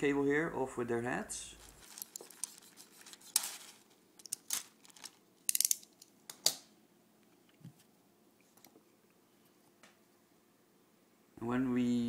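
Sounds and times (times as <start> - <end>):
tool clicking on metal parts: 5.5 - 6.6.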